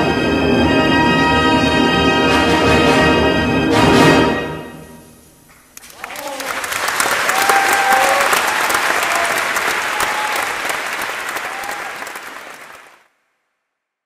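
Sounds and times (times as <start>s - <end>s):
audience applauding: 5.5s - 13.1s
audience calls: 5.8s - 13.0s.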